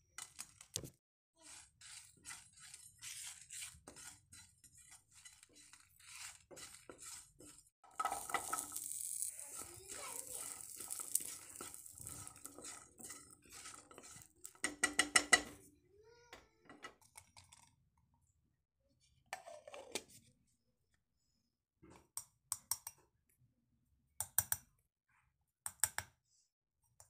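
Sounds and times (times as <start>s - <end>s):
metal kitchenware clinking: 7.9s - 15.6s.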